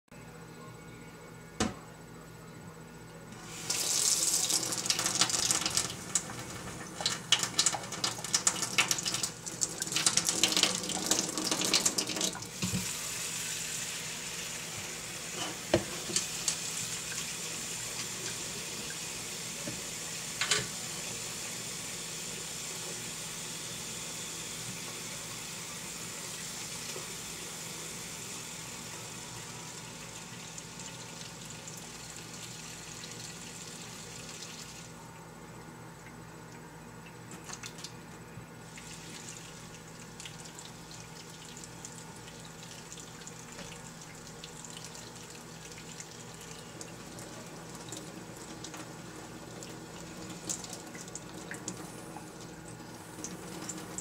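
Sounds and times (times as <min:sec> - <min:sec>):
faucet water splashing in sink: 0:03.4 - 0:13.6, 0:37.0 - 0:38.0, 0:38.7 - 0:54.0.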